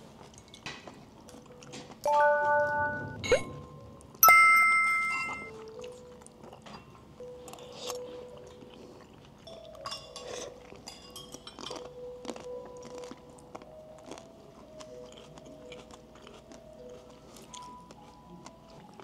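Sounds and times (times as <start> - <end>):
chewing and biting food: 0.0 - 2.0, 5.5 - 19.0.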